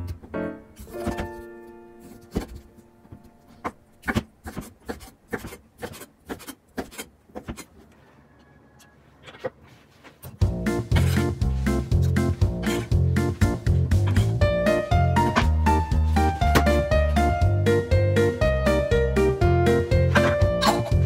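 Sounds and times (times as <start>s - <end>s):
knife chopping on wooden board: 2.1s - 2.7s, 3.6s - 7.7s.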